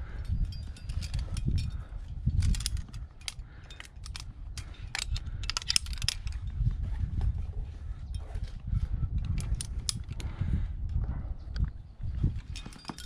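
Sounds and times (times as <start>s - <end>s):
carabiners clinking and snapping: 0.0s - 7.4s, 8.1s - 10.3s, 12.2s - 13.0s
steady low rumble: 0.0s - 12.6s.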